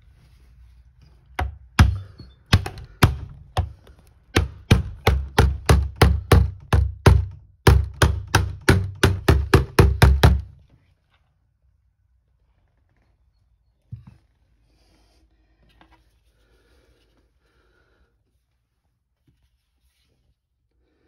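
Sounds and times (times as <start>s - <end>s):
mallet knocking plastic: 1.4s - 10.6s.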